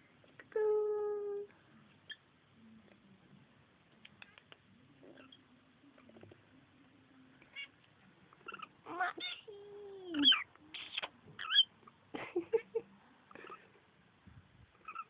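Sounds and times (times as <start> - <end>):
lovebirds chattering and squeaking: 10.1 - 11.7.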